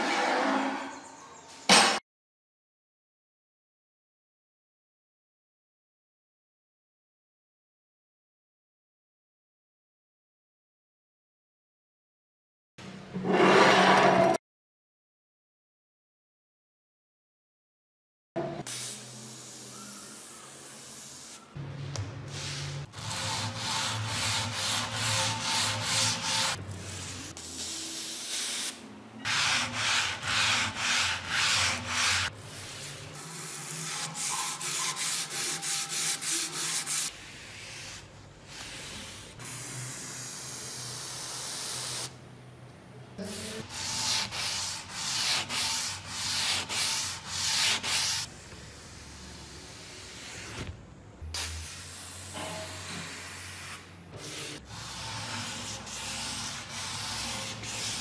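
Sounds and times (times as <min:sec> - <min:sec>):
sanding a steel blade: 0:23.0 - 0:27.3, 0:33.2 - 0:37.1.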